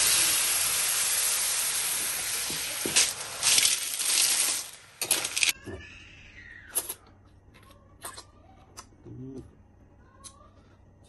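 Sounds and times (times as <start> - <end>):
frying sizzle in a wok: 0.0 - 5.5
snail shells clattering into wok: 2.9 - 5.5.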